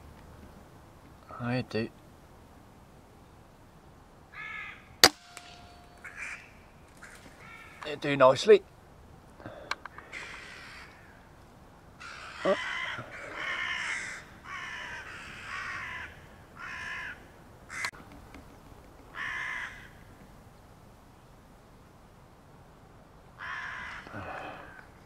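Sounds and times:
crows cawing: 4.3s - 7.9s, 9.4s - 11.3s, 12.0s - 17.9s, 19.1s - 20.1s, 23.4s - 24.9s.

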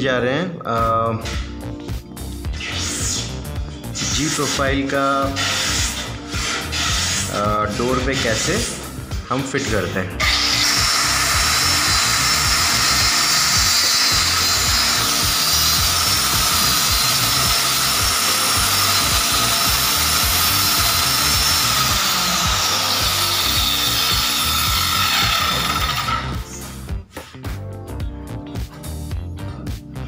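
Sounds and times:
blade rasping through wood: 4.1s - 9.0s, 10.2s - 26.7s
electric cutter motor whine: 10.2s - 26.7s.

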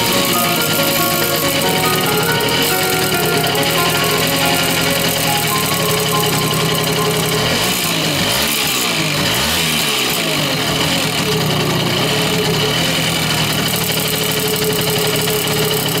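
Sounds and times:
moped engine revving and idling: 6.8s - 16.0s.

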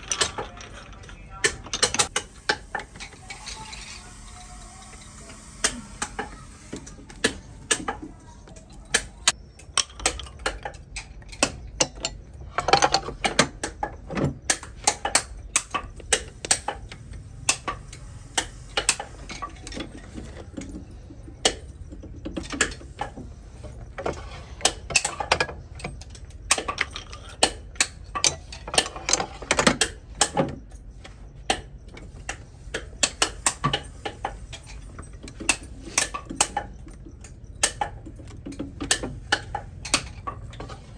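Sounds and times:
clicks and knocks of hard parts: 0.0s - 40.9s
low hum: 2.0s - 9.4s.

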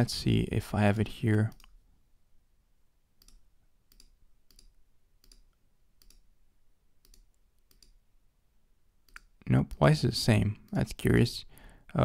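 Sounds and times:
computer mouse clicks: 1.5s - 1.8s, 3.2s - 6.3s, 7.0s - 8.0s, 9.0s - 9.4s.

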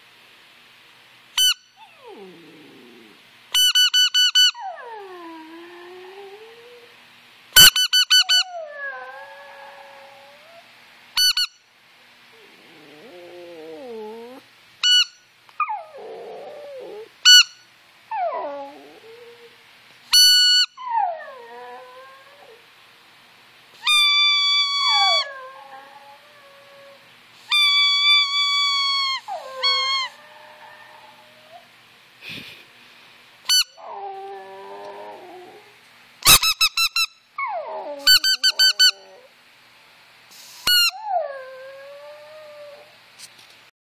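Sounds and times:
dog howling: 1.8s - 3.2s, 4.6s - 7.0s, 8.4s - 10.7s, 12.4s - 14.4s, 15.6s - 17.1s, 18.1s - 19.6s, 20.7s - 22.7s, 23.8s - 31.7s, 33.8s - 35.8s, 37.4s - 39.3s, 40.9s - 43.0s
squeaky toy squeaks: 3.6s - 4.6s, 7.6s - 8.4s, 14.8s - 15.2s, 27.5s - 30.0s, 36.2s - 37.2s, 38.1s - 39.0s.

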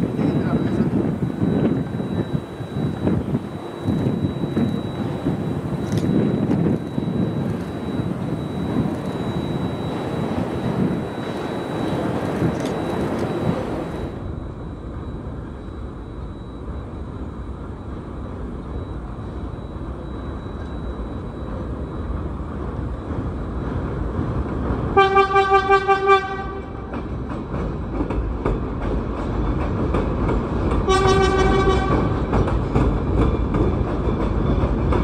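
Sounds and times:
train rumble on steel structure: 0.0s - 35.0s
train wheel clatter: 19.6s - 35.0s
train horn short toots: 25.0s - 26.9s, 30.9s - 32.2s.

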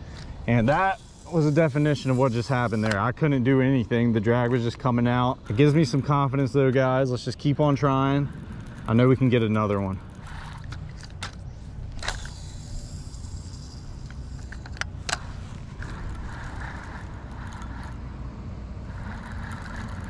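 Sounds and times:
low wind rumble: 0.0s - 20.0s
fishing line hiss: 0.5s - 3.0s, 12.0s - 14.6s
fishing reel click: 1.0s - 3.0s, 9.5s - 18.0s
reel cranking: 8.4s - 18.0s, 18.8s - 20.0s.

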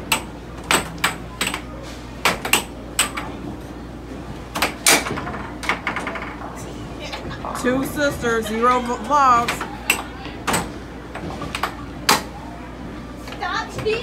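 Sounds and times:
air hockey puck and mallets clacking: 0.0s - 3.4s, 4.5s - 6.6s, 9.0s - 12.4s.

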